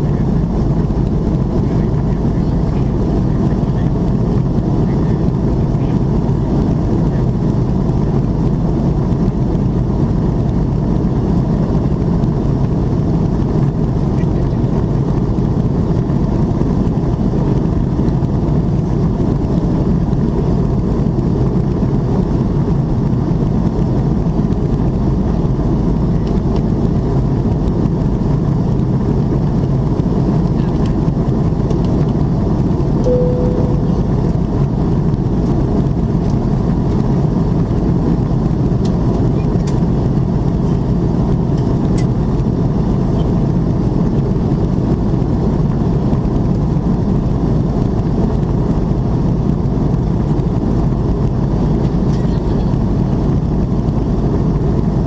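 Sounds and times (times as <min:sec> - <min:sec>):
airplane cabin rumble: 0:00.0 - 0:55.0
short faint tone: 0:33.0 - 0:34.7.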